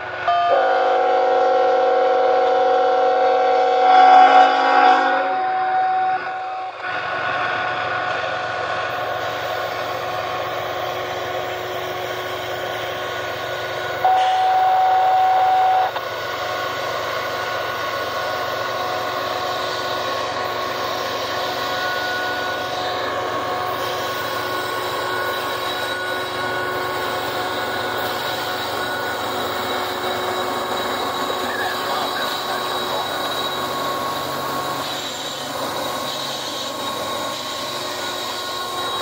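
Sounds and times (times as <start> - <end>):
diesel locomotive engine drone: 0.0 - 39.0
loud steady horn note: 0.3 - 6.8, 14.0 - 16.0.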